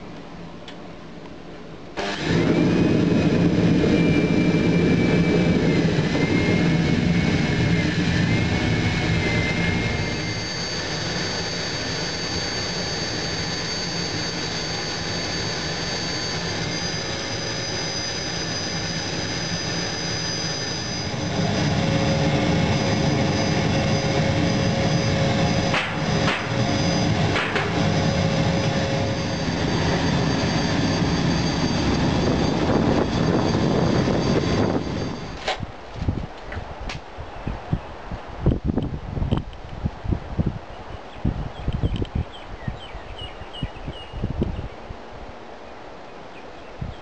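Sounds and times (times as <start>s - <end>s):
faint whine: 0.0s - 35.6s
furnace burner rushing: 2.0s - 12.1s, 16.4s - 35.4s.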